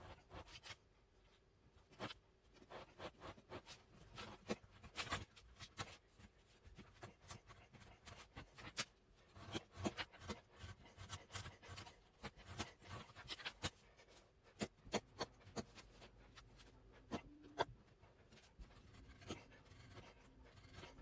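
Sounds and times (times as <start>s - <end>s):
knife scraping through cardboard: 1.9s - 6.0s, 6.8s - 16.5s.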